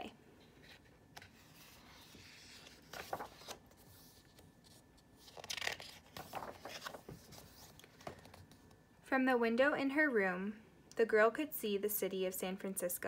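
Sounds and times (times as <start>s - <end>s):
book pages turning: 0.5s - 8.8s.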